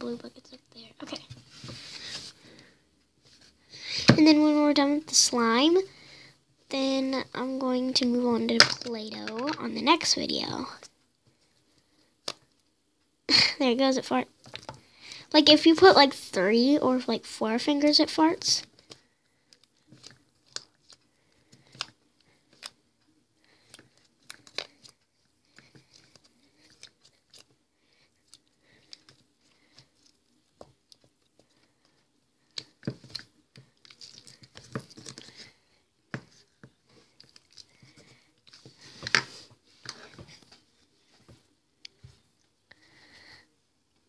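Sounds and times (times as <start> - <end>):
sticky slime squelches: 15.3 - 42.6.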